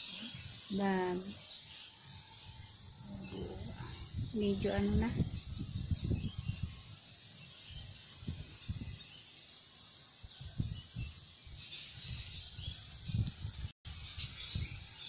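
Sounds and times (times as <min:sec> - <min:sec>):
faint bird chirping: 0:00.0 - 0:15.0.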